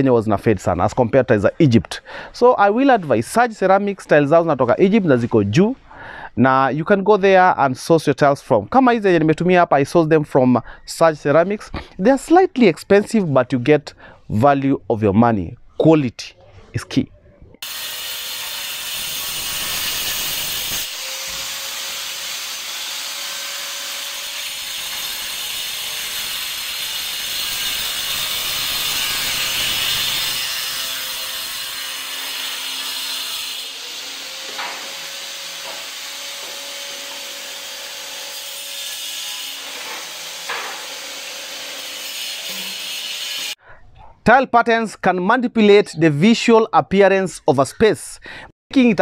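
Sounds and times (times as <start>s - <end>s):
angle grinder cutting tile: 17.6s - 43.6s.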